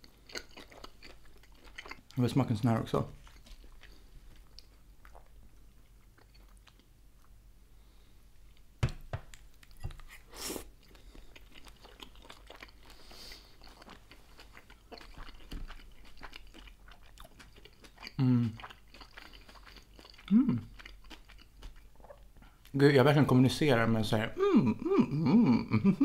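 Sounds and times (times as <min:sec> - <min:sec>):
person chewing: 0:00.0 - 0:02.2, 0:03.1 - 0:07.4, 0:09.3 - 0:22.7.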